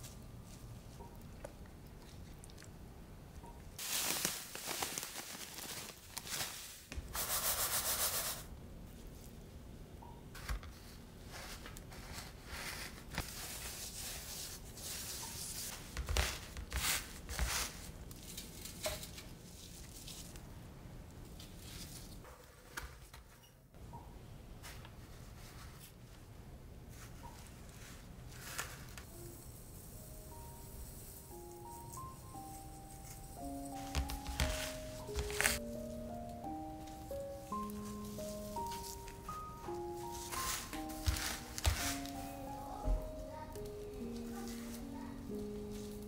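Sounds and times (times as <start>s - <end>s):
breadcrumbs rustling: 3.8s - 8.4s, 10.4s - 20.5s, 32.0s - 36.2s, 36.8s - 46.0s.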